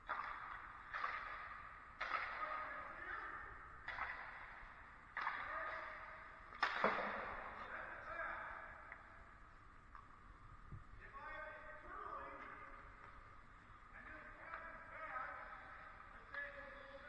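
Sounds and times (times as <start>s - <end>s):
hockey pucks struck with echo: 0.1s - 2.7s, 3.8s - 7.8s.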